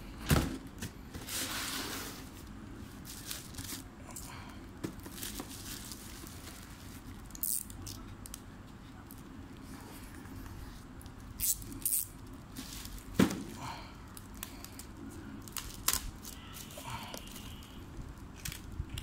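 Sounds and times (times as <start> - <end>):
plastic bag rustling: 1.2 - 3.9, 5.0 - 7.2.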